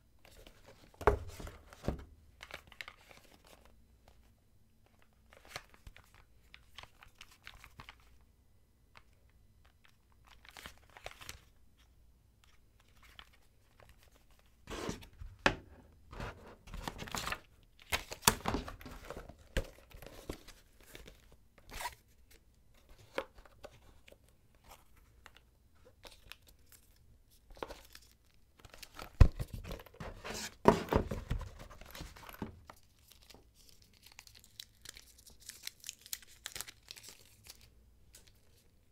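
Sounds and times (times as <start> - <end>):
box handling clicks and knocks: 29.2 - 32.6.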